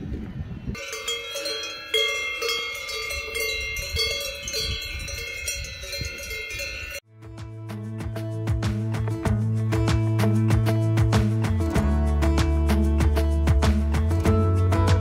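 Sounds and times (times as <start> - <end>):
cowbells clanking: 0.8 - 7.0.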